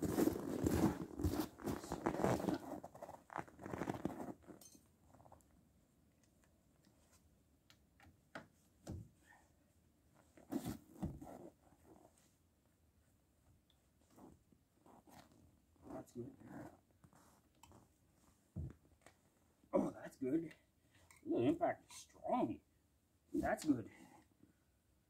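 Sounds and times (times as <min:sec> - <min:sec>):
footsteps crunching in snow: 0:00.0 - 0:03.2
clothing rustle: 0:00.0 - 0:05.5, 0:10.1 - 0:12.4, 0:13.9 - 0:19.6.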